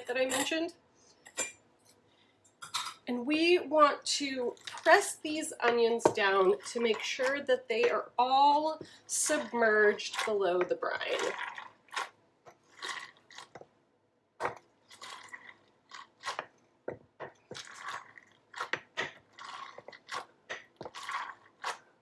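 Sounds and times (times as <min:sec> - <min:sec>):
onions crunching and squelching: 0:06.0 - 0:13.6, 0:14.4 - 0:16.6, 0:17.4 - 0:22.0.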